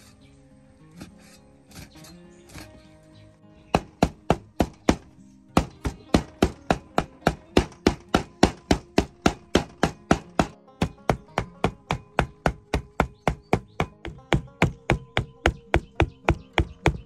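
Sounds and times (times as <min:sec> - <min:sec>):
cleaver chopping on wooden board: 0:03.7 - 0:17.0.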